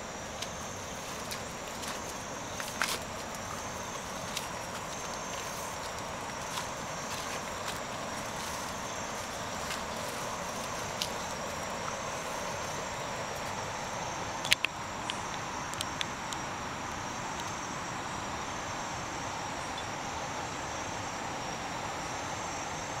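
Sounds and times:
forest insects droning: 0.0 - 23.0
sharp clicks: 14.4 - 16.1.

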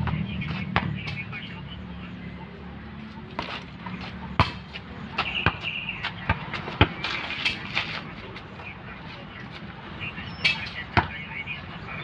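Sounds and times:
basketball bouncing on asphalt: 0.0 - 1.4, 3.0 - 9.2, 10.5 - 11.3.

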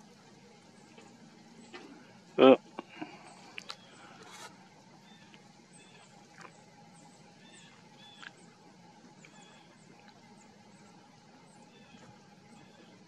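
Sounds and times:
low steady hum: 0.0 - 13.0
distant bird chirps: 2.6 - 13.0.

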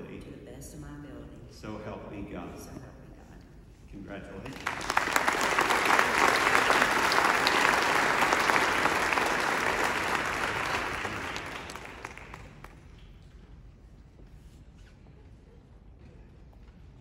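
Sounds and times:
audience applauding: 4.4 - 12.9.

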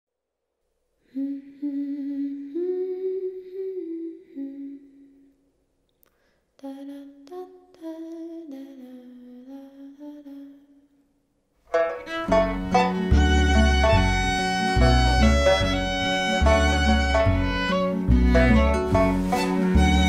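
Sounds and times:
person humming a slow melody: 1.0 - 5.4, 6.6 - 10.9.

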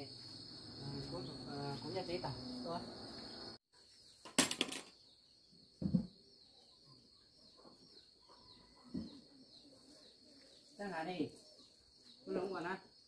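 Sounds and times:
crickets trilling: 0.0 - 4.1.

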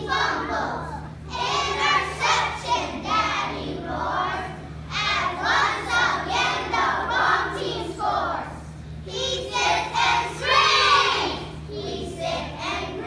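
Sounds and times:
children singing together: 0.0 - 13.0.

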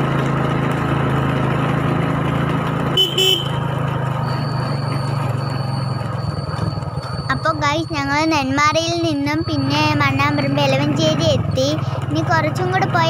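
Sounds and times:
small motorcycle engine running: 0.0 - 13.0
horn toots: 2.9 - 3.7.

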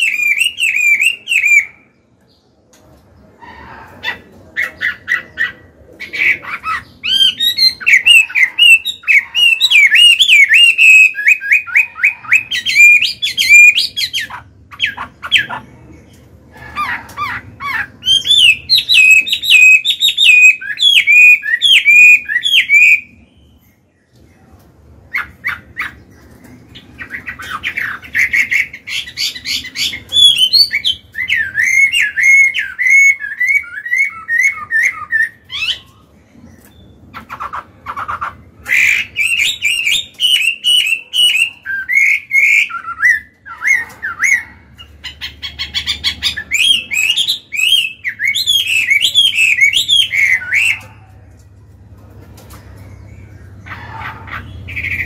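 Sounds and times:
songbird whistling song: 0.0 - 1.9, 6.2 - 15.6, 16.8 - 23.9, 25.1 - 36.0, 36.6 - 51.0.

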